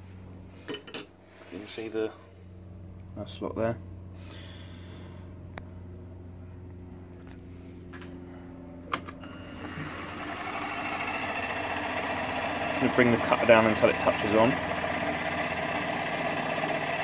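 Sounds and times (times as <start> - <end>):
milling machine motor hum: 8.4 - 17.0.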